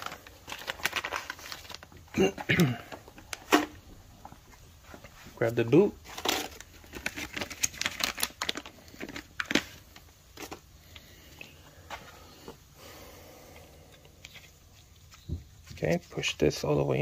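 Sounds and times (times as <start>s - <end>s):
plastic bag crinkling: 0.0s - 4.4s, 5.4s - 11.0s.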